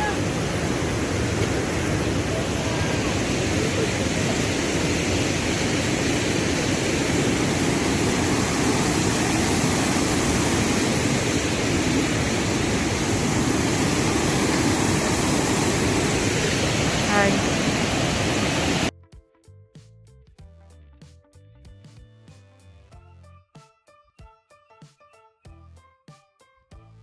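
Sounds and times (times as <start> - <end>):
white-water rapids rushing: 0.0 - 18.9.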